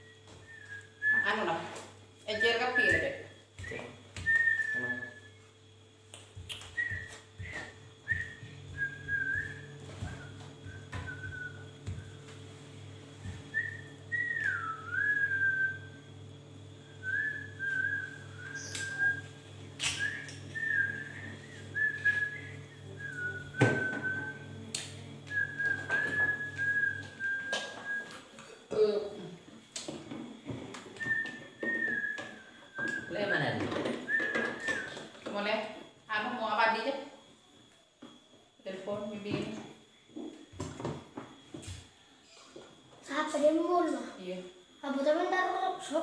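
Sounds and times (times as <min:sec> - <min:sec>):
low pulsing hum: 0:00.0 - 0:29.7
person whistling a tune: 0:03.6 - 0:05.2, 0:06.5 - 0:12.1, 0:31.0 - 0:33.4, 0:34.1 - 0:35.1.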